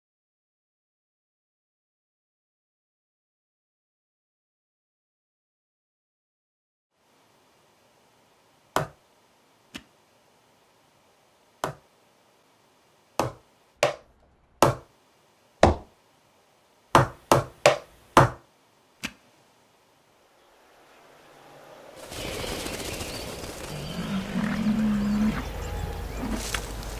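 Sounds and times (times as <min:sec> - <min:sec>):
wooden stamps knocking on paper: 0:13.2 - 0:14.0, 0:14.6 - 0:14.9, 0:15.6 - 0:15.9, 0:17.0 - 0:18.4.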